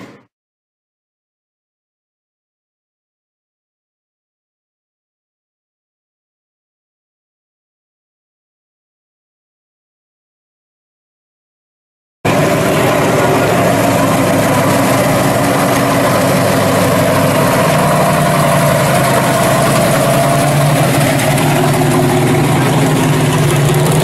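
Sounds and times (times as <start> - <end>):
car engine idling: 12.3 - 24.0.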